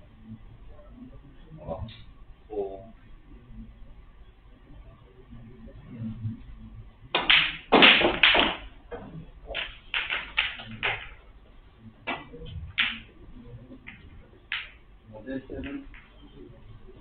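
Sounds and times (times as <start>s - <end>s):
people clapping: 7.2s - 8.7s, 9.5s - 11.2s, 12.1s - 13.1s, 13.8s - 14.8s.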